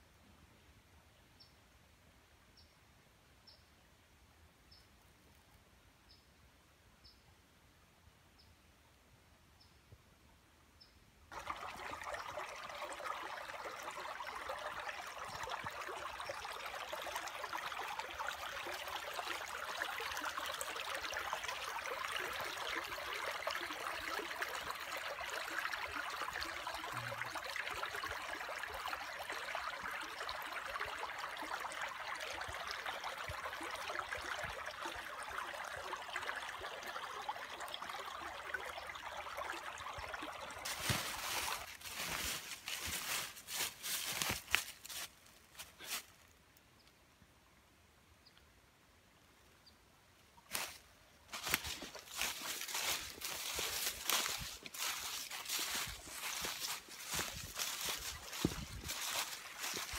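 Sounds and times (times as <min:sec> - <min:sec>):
creek trickling over stones: 0:11.3 - 0:47.1, 0:49.2 - 0:59.9.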